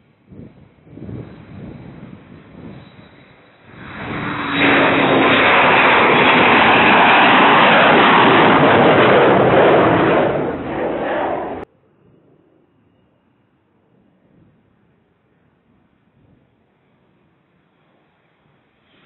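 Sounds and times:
fighter jet passing overhead: 0.9 - 11.7.

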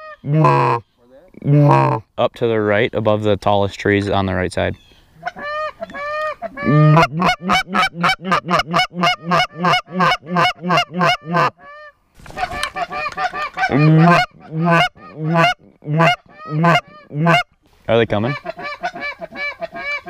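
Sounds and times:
goose call honking: 0.0 - 0.8, 1.4 - 2.0, 5.2 - 17.5.

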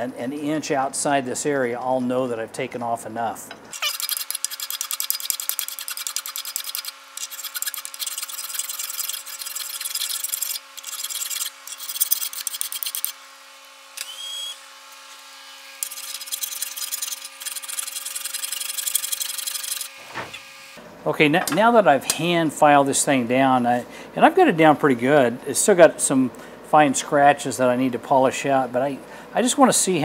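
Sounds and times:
file rasping on metal: 3.8 - 13.2.

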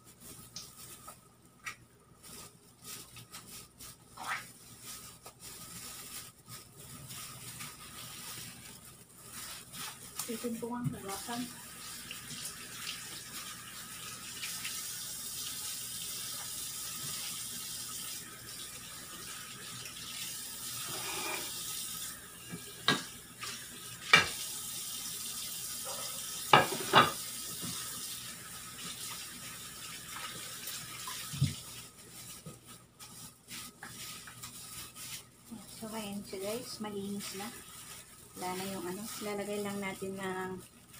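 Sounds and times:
tap water running into sink: 26.3 - 31.8.

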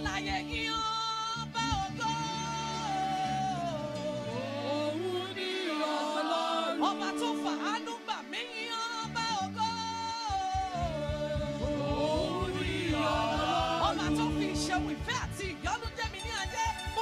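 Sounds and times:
fast low beat: 0.0 - 2.6, 9.8 - 17.0
choir singing gospel song: 0.0 - 17.0.

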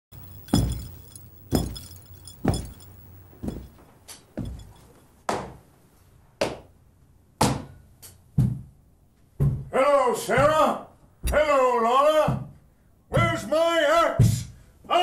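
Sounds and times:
glassy chinking: 0.1 - 3.8, 4.4 - 5.0
heavy echoing footsteps: 0.1 - 5.5.

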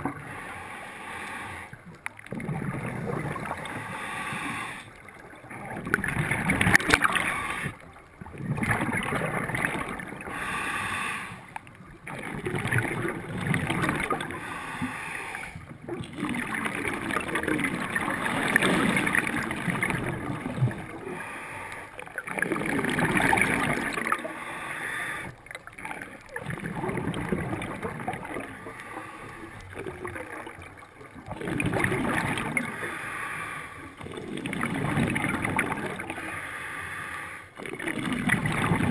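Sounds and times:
diver breathing through regulator: 0.1 - 1.8, 3.6 - 5.0, 7.0 - 7.8, 10.2 - 11.6, 14.2 - 15.7, 21.0 - 22.1, 23.9 - 25.5, 28.6 - 29.8, 32.6 - 34.0, 36.2 - 37.6.

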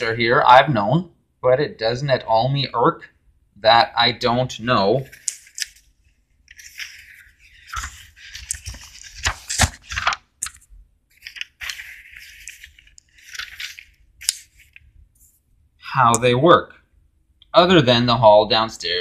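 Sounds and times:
paper rustling and scraping: 5.0 - 15.4.

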